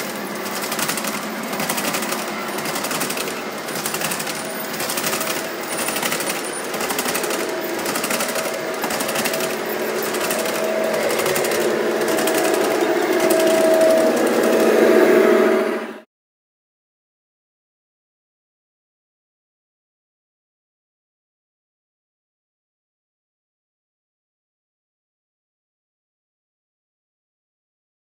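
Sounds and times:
metal wheels clattering over rails: 0.0 - 15.9
hum: 0.0 - 16.1.

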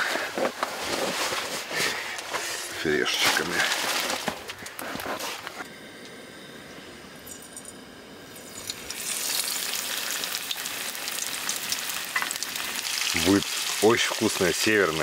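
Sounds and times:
fish sizzling in hot oil: 7.3 - 15.0.

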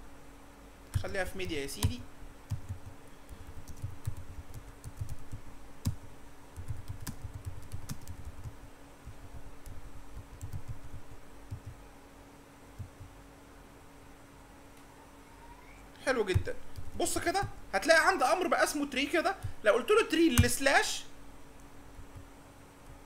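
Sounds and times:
typing on computer keyboard: 1.8 - 6.0, 6.6 - 8.6, 9.6 - 11.8.

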